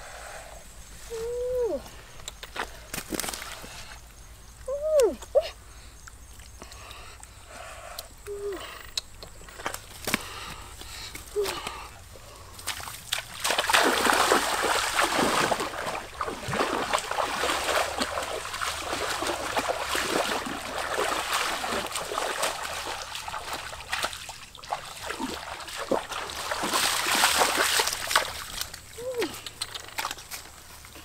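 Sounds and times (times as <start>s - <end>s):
water splashing: 12.5s - 30.2s.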